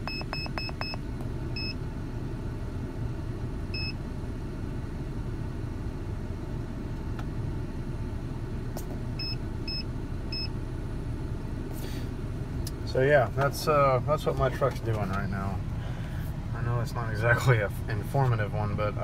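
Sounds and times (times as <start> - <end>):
scan tool beeps: 0.0 - 1.0, 9.2 - 10.5
truck engine high idle: 7.6 - 19.0.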